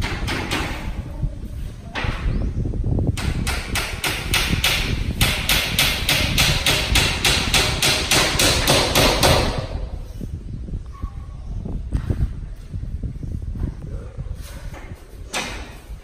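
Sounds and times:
rapid hammer blows: 3.2s - 9.7s.

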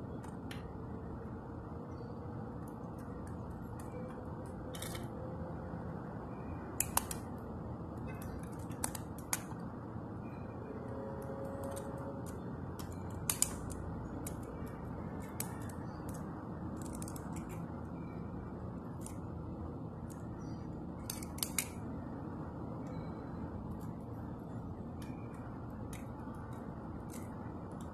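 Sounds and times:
toy truck clicks and creaks: 2.6s - 5.2s, 6.8s - 7.4s, 8.0s - 9.6s, 10.8s - 17.7s, 18.9s - 19.3s, 20.0s - 21.9s, 23.7s - 27.9s.

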